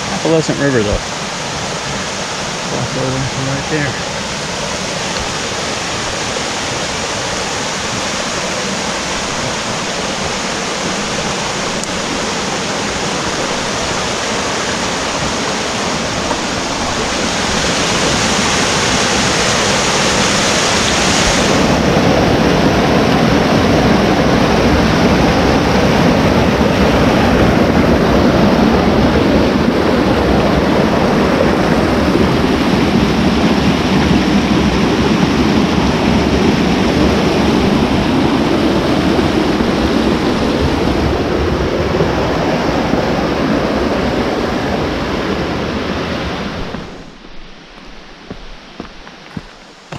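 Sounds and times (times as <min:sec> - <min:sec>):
stream rushing over boulders: 0:00.0 - 0:49.9.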